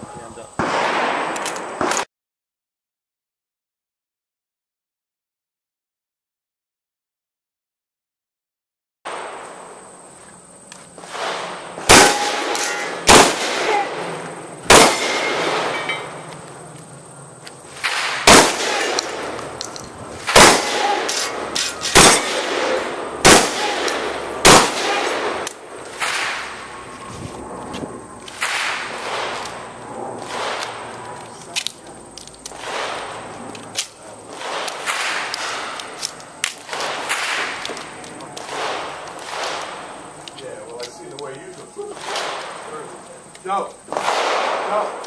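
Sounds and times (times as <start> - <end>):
shotgun shots: 0.6 - 2.1, 11.0 - 16.3, 17.7 - 26.8, 28.3 - 30.9, 32.5 - 33.3, 34.3 - 40.0, 42.0 - 42.8, 43.9 - 45.0.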